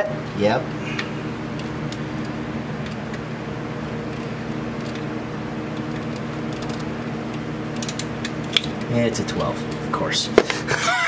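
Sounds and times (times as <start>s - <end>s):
low steady hum: 0.0s - 11.0s
socket wrench clicks: 7.7s - 8.8s.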